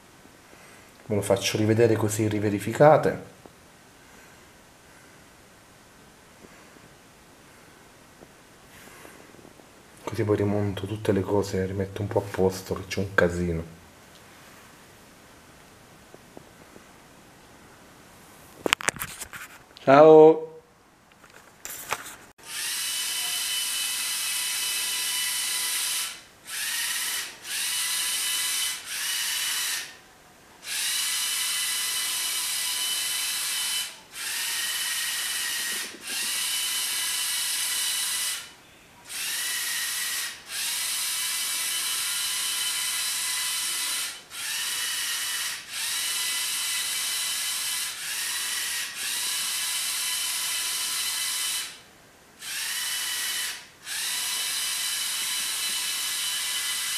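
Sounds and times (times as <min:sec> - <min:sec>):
toy motor and gears whining: 0:22.4 - 0:30.0, 0:30.6 - 0:51.8, 0:52.4 - 0:56.9.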